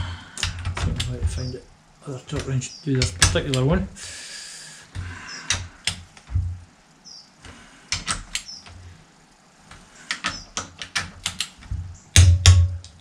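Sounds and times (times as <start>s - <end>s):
socket wrench ratcheting clicks: 10.1s - 11.6s.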